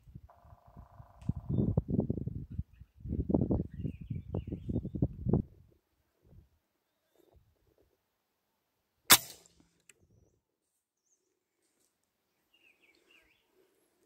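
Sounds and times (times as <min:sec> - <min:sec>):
rifle shot: 0:09.1 - 0:09.6.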